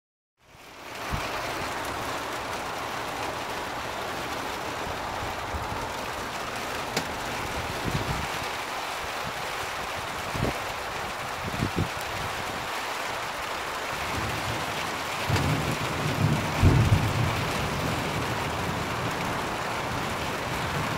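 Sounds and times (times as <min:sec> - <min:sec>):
steady rain falling: 0:00.4 - 0:20.9.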